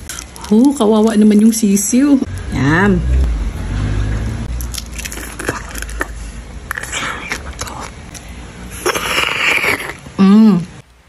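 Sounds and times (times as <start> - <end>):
slurping: 4.6 - 8.0, 8.7 - 10.8.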